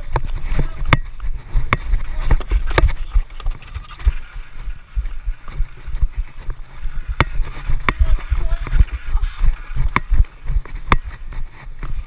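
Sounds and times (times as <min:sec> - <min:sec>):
low rumble of wind: 0:00.0 - 0:12.0
sticks and ball clacking: 0:07.1 - 0:08.8.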